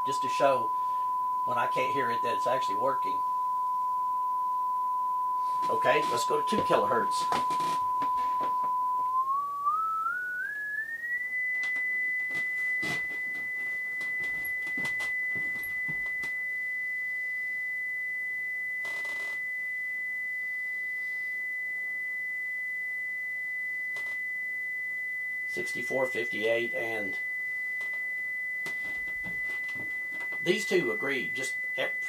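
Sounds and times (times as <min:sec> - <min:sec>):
sine-wave test tone: 0:00.0 - 0:32.0.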